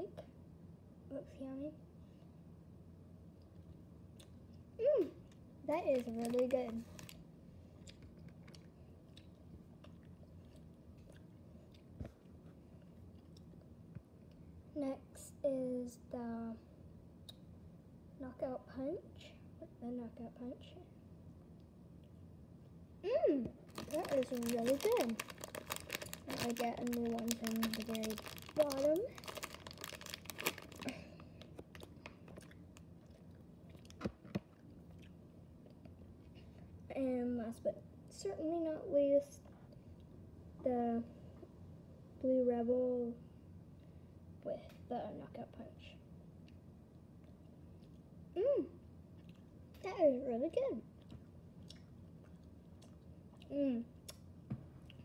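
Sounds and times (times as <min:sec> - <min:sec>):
person chewing gummy candy: 0:05.2 - 0:07.2, 0:07.8 - 0:12.0, 0:23.6 - 0:36.0, 0:49.1 - 0:49.6, 0:51.0 - 0:54.2
plastic packaging crinkling: 0:05.7 - 0:07.2, 0:23.6 - 0:32.6.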